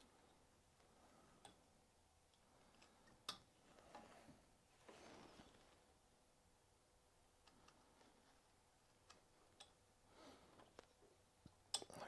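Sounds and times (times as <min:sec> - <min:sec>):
soft scraping: 0:03.6 - 0:06.0.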